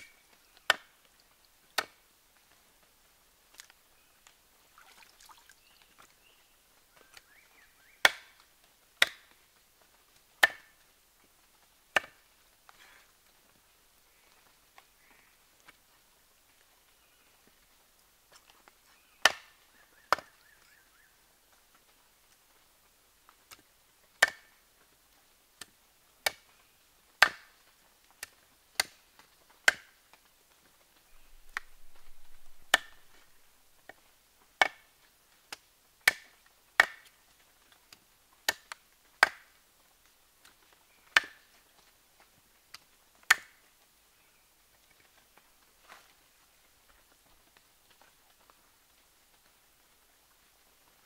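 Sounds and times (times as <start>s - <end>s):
soft rustling: 30.5s - 34.2s.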